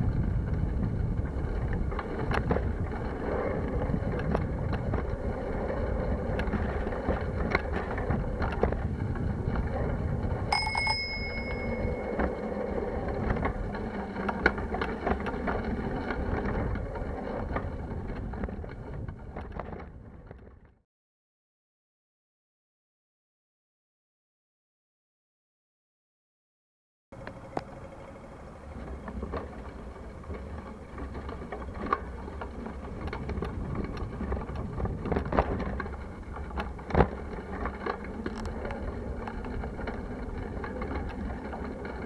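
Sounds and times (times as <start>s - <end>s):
bicycle rumbling over concrete: 0.0s - 20.8s, 27.2s - 42.0s
bicycle knocks and rattles: 10.5s - 12.4s, 31.1s - 38.5s
bicycle bell ringing: 10.5s - 12.7s.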